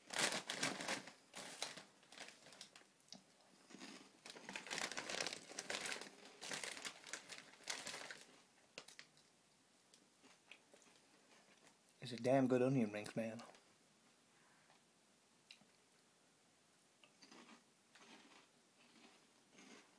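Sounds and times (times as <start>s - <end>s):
crisp packet crinkling: 0.0s - 2.9s, 3.7s - 9.3s.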